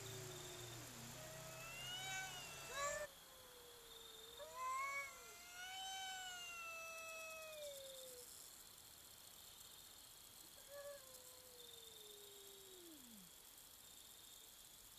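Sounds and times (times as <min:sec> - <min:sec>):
cat yowling: 0:00.7 - 0:08.2.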